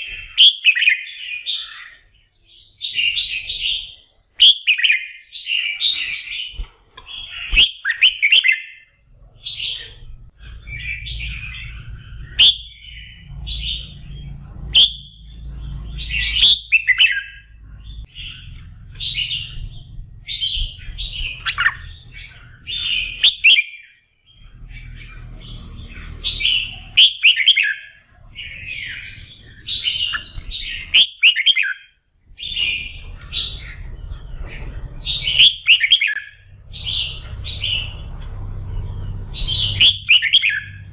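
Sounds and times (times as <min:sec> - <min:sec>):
bird warbling song: 0:00.0 - 0:40.9
low hum: 0:09.0 - 0:23.2, 0:32.2 - 0:40.9.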